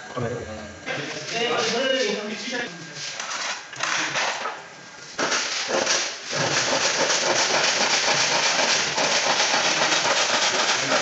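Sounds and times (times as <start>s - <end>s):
power saw cutting board: 5.2s - 11.0s.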